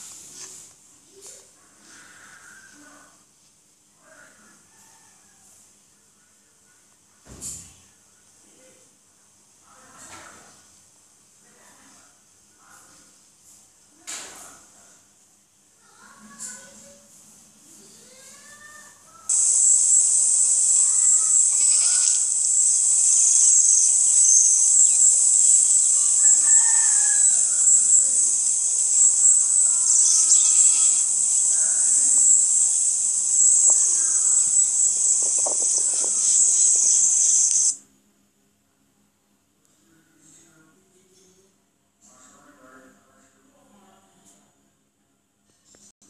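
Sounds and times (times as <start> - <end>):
faint bird calls: 1.6 - 3.2, 17.8 - 37.8
high-pitched insect drone: 19.3 - 37.8.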